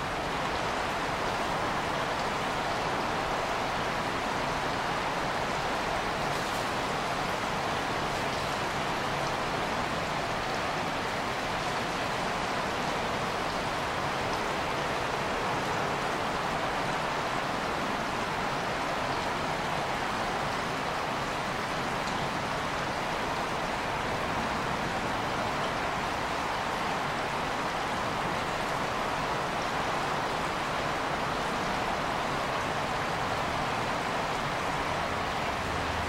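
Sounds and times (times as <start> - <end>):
creek water rushing: 0.0 - 36.0.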